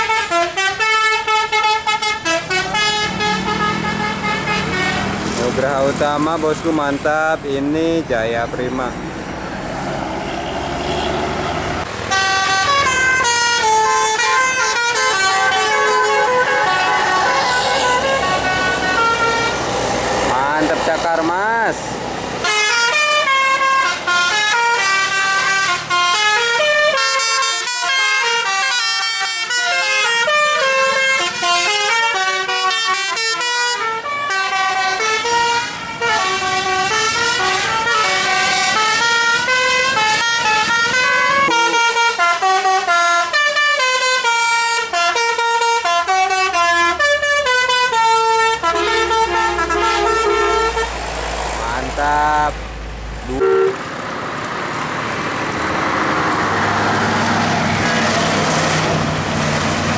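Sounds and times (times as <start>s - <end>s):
musical air horns playing tunes: 0.0s - 5.4s, 12.0s - 19.7s, 22.4s - 51.0s, 53.3s - 53.8s.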